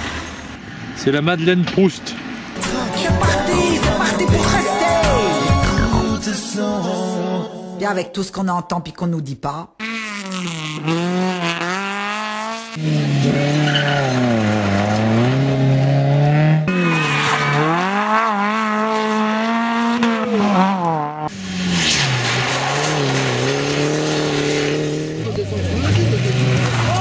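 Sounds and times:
rally car engines revving: 9.8s - 27.0s.

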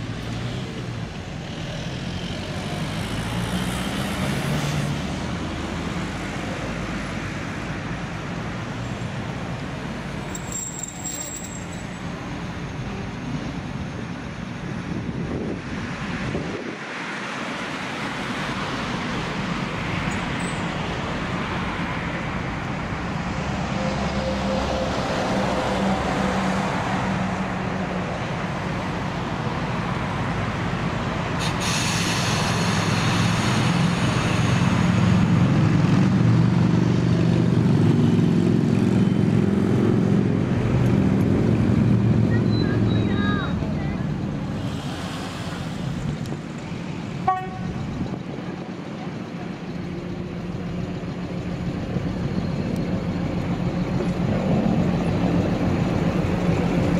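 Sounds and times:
diesel locomotive engine running: 17.4s - 56.9s
air hiss: 31.4s - 33.7s, 44.5s - 46.2s.

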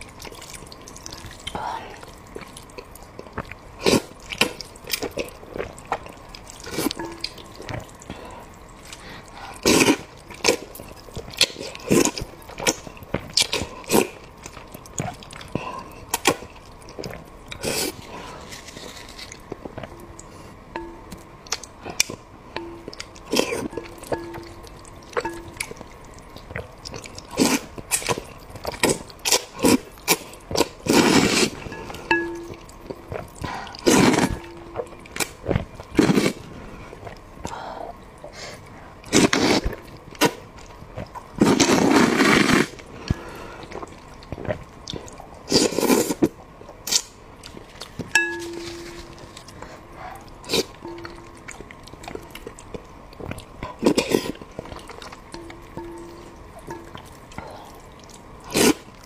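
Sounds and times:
utensils clinking: 22.6s - 25.8s, 31.6s - 33.3s, 48.1s - 49.8s, 50.7s - 51.5s, 55.3s - 57.2s.

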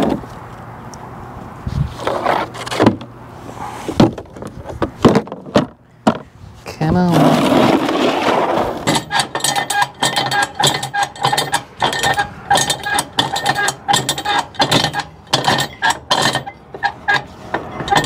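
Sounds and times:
strap winch ratcheting clicks: 8.9s - 18.0s.

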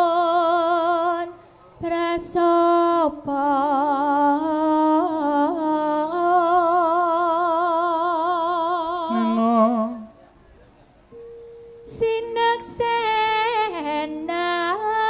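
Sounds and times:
woman singing with vibrato: 0.0s - 10.1s, 11.8s - 15.0s.

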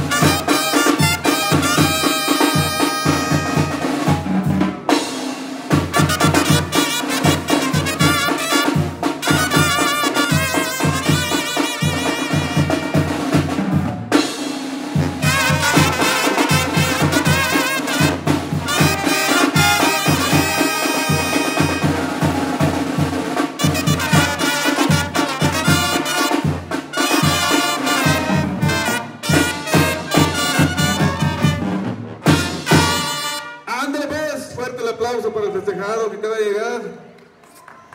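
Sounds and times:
brass band playing: 0.0s - 34.6s
bass drum beat: 14.9s - 33.2s.

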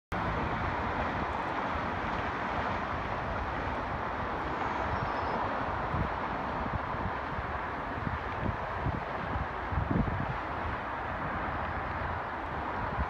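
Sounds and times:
traffic hum: 0.1s - 13.0s.

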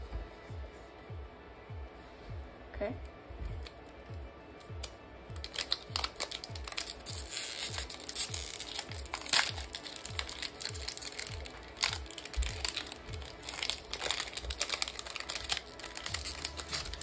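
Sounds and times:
background music with bass beat: 0.0s - 17.0s
cards and foil wrapper crinkling: 4.8s - 17.0s.

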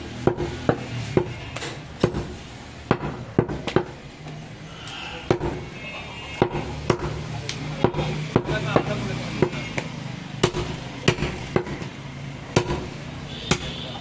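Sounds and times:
knife chopping on wooden block: 0.3s - 3.9s, 7.8s - 11.9s, 12.6s - 12.9s.

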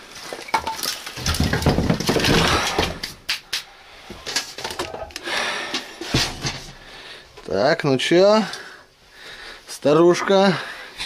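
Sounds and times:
firewood knocking and clattering: 0.2s - 3.1s.

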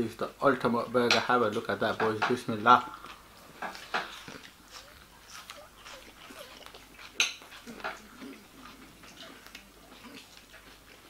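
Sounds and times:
mouth clicks and smacks: 2.8s - 11.0s
person chewing: 2.8s - 11.0s.

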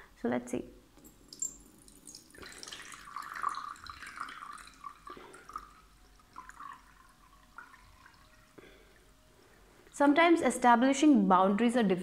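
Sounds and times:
water pouring into a bowl: 1.2s - 9.1s.

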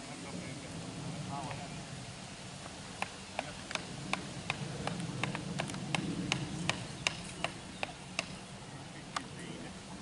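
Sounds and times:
low steady hum: 0.0s - 10.0s
hatchet hammering wooden stake: 3.0s - 8.4s.

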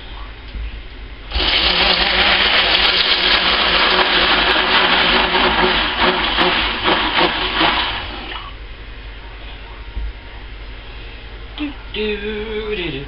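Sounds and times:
stick blender motor whirring: 1.3s - 8.2s.

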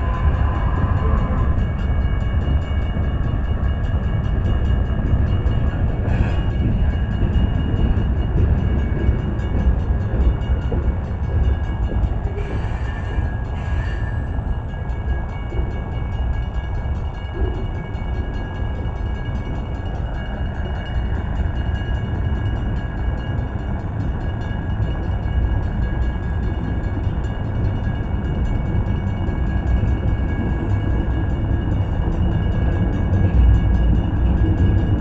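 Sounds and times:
train wheels rumbling on rails: 0.0s - 35.0s.

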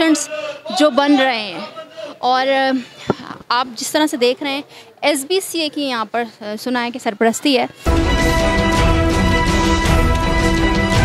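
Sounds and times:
theme music with chords and beat: 7.9s - 11.0s.

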